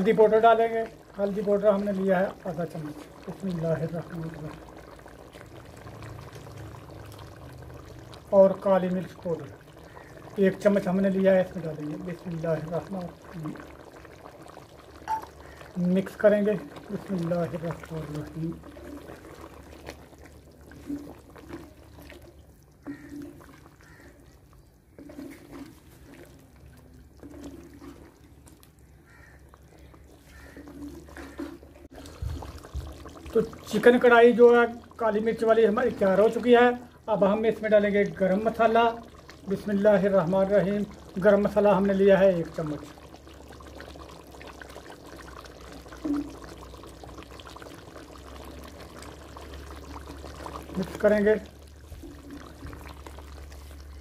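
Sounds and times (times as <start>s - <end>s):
gravy bubbling in a pot: 0.0s - 54.0s
spatula stirring thick curry: 16.0s - 43.0s.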